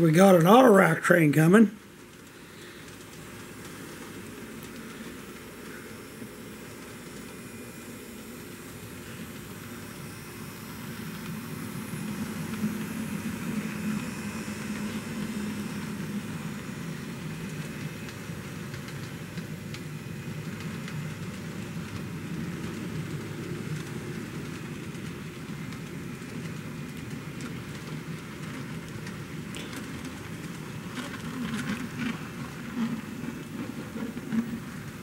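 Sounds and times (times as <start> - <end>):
model train running gear hum: 0.0 - 35.0
wheels clicking over rail joints: 10.9 - 35.0.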